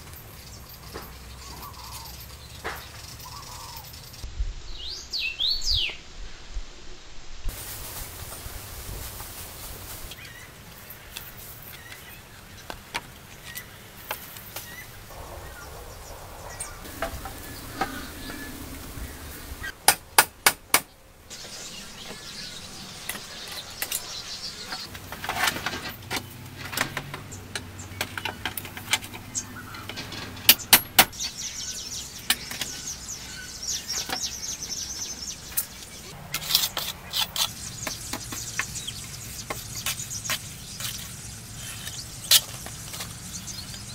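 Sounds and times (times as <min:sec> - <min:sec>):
sharp knocks on bamboo: 0:19.8 - 0:20.9
clicks and scraping: 0:23.0 - 0:31.2, 0:35.5 - 0:43.9
trowel scraping and tapping mortar: 0:36.3 - 0:38.8.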